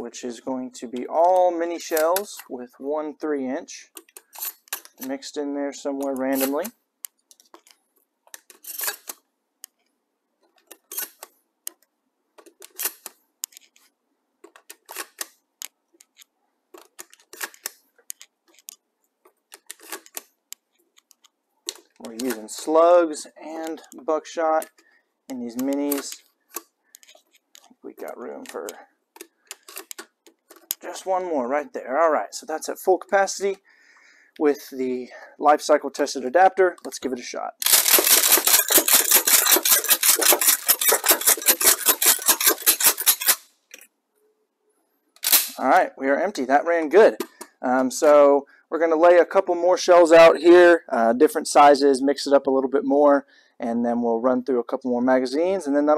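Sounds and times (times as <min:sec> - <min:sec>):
shotgun shells clicking into magazine: 0:37.6 - 0:43.4.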